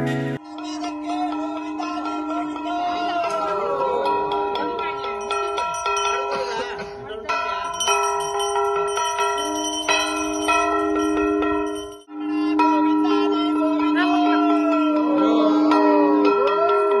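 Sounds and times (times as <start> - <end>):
bells ringing: 0.0 - 17.0.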